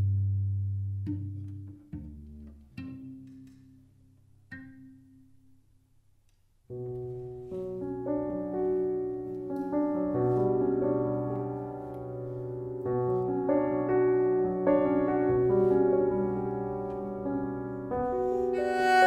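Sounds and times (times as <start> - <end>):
piano playing slow chords: 6.7 - 19.0.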